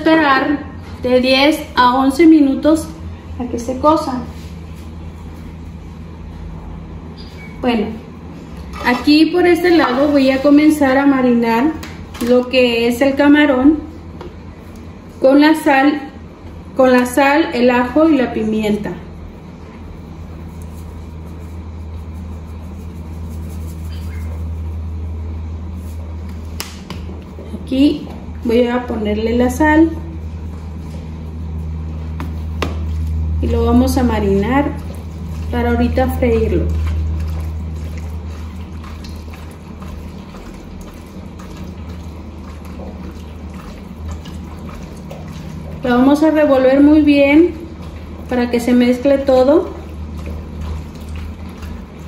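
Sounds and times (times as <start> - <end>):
wet squishes of shrimp mixing: 19.4 - 25.0, 29.4 - 52.0
shaker rattling: 20.4 - 24.9
water boiling in a pot: 27.6 - 52.0.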